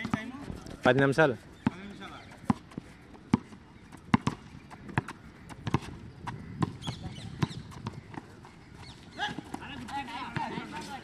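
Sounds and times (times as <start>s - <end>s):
players' footfalls: 1.7s - 11.0s
basketball bouncing on court: 2.4s - 8.3s.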